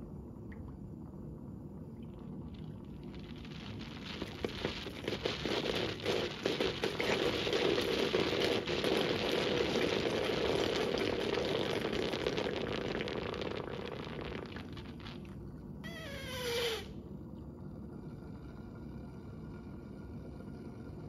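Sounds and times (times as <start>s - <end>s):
water spattering in plastic bowl: 3.1s - 11.0s.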